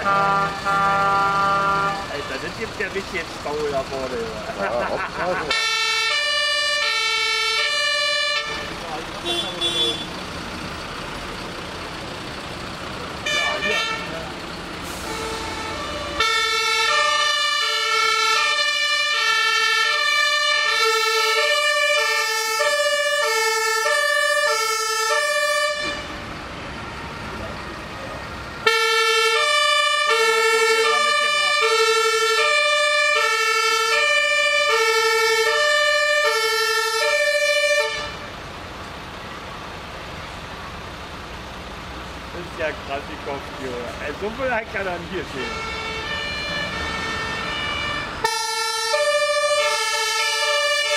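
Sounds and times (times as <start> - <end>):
fire engine two-tone siren: 0.0 - 2.6, 5.5 - 10.1, 13.2 - 14.2, 14.8 - 38.4, 45.2 - 50.9.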